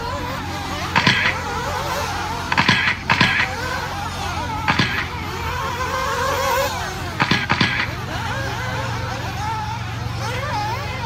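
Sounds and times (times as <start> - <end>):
rc buggy engines whining: 0.0 - 11.0
short loud bursts: 1.0 - 1.5, 2.5 - 3.6, 4.7 - 5.2, 7.2 - 8.0.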